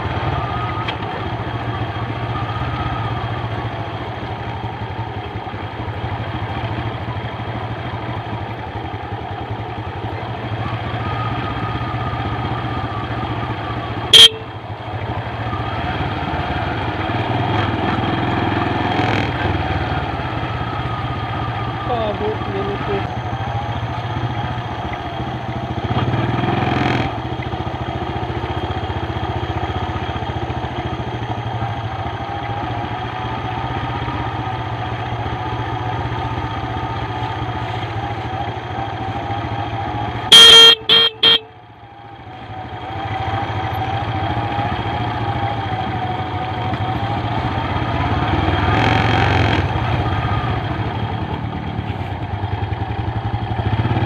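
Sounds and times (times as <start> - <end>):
motorcycle engine running: 0.0 - 54.0
horn toots: 14.1 - 14.5, 40.3 - 41.6.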